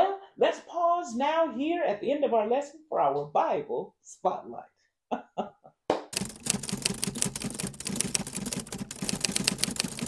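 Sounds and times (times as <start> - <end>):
rapid clattering clicks: 6.2 - 10.0.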